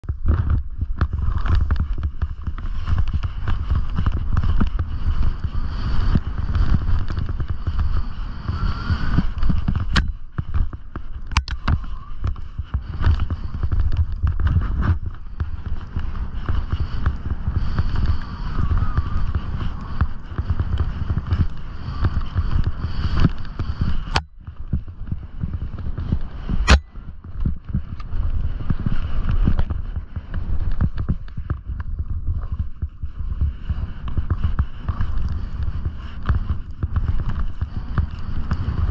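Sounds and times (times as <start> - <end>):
wind rumble on microphone: 0.0 - 38.9
skis hissing through snow: 0.3 - 24.2, 27.8 - 38.9
sharp click: 26.6 - 26.9.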